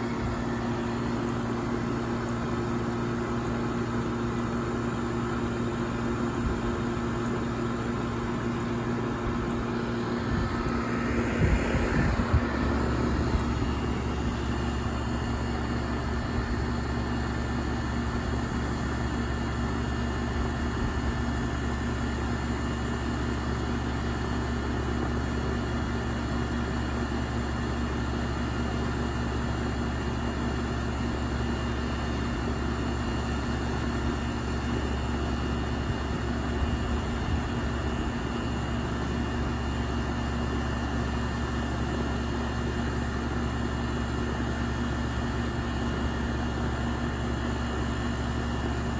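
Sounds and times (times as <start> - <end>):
air conditioner unit humming: 0.0 - 26.4, 29.4 - 48.9.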